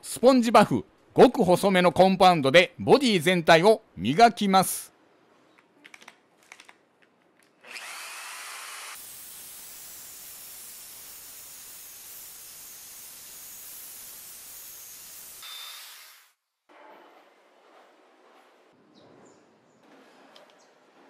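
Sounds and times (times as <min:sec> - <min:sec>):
rotary polisher whirring: 0:07.6 - 0:09.7.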